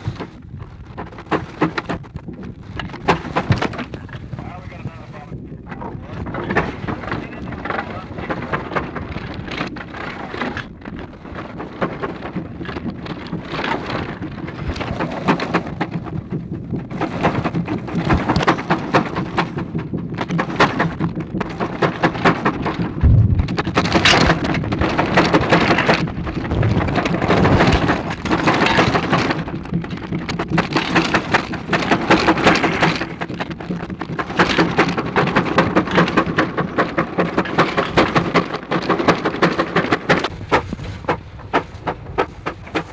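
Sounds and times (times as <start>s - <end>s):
low thumps: 22.1s - 34.5s.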